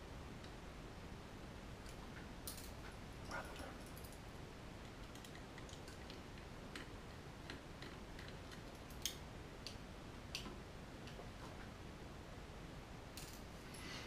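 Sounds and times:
small plastic clicks and ticks: 4.8 - 11.2.

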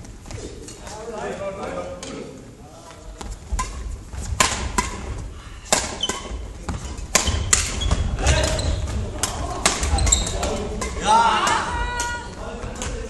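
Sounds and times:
rackets striking shuttlecock: 3.5 - 13.0.

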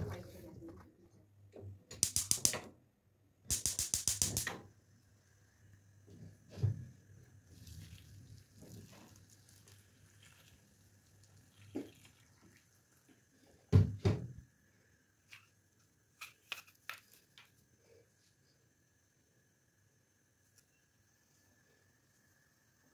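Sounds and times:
water poured into pot: 7.4 - 13.5.

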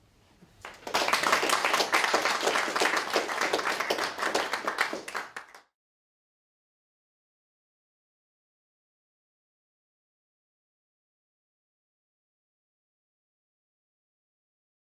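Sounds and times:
audience applauding: 0.6 - 5.7.

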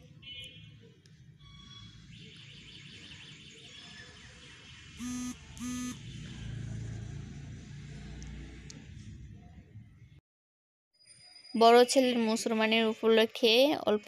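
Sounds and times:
short buzzy beeps: 5.0 - 6.0.

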